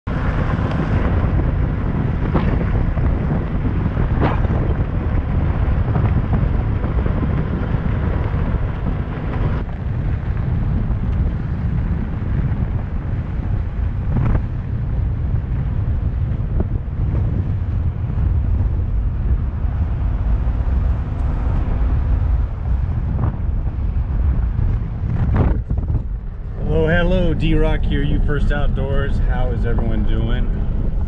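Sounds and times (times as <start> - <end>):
tyres rumbling on gravel road: 0.1 - 31.0
wind buffeting microphone: 0.1 - 31.0
gravel ticks: 8.7 - 14.8.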